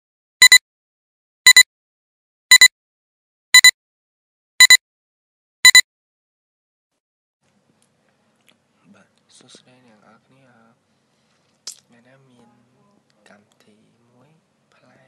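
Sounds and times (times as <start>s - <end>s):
short double electronic beeps: 0.4s - 0.6s, 1.5s - 1.7s, 2.5s - 2.7s, 3.6s - 3.8s, 4.6s - 4.8s, 5.6s - 5.8s.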